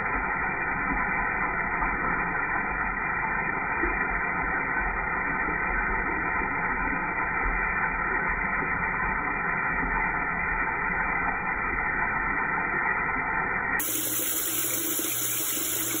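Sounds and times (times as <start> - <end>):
liquid pouring into toilet water: 13.8 - 16.0.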